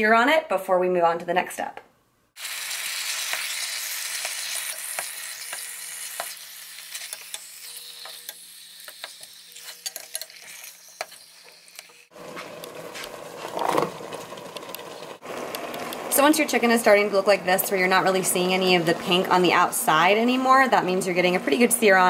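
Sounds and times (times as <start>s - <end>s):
chicken sizzling in a pot: 2.4s - 17.1s.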